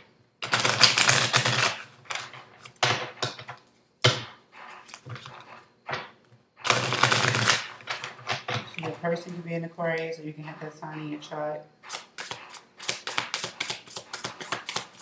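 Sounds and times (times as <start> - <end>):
cards being shuffled: 11.9 - 15.0.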